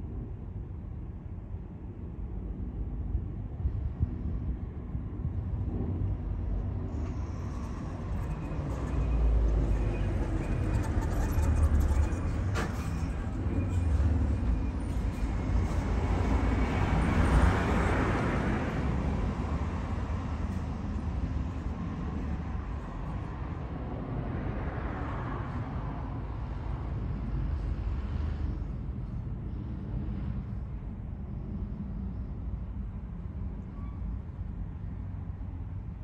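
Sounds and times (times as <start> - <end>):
road traffic rumble: 3.6 - 36.0.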